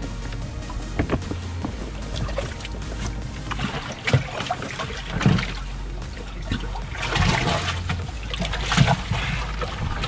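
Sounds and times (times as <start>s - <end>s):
water sloshing and splashing: 0.0s - 10.0s.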